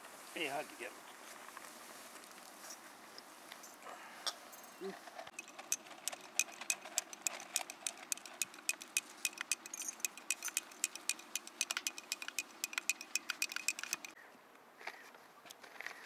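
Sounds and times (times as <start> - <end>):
teaspoon clinking in tea glass: 5.3 - 14.2.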